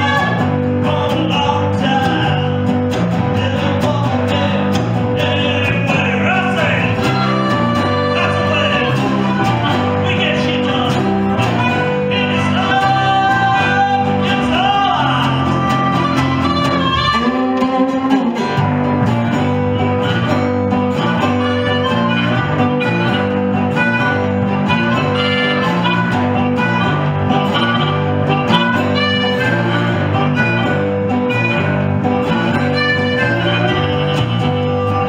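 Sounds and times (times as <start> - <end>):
electric bass: 0.0 - 35.0
harmonica melody: 0.0 - 35.0
resonator guitar: 0.0 - 35.0.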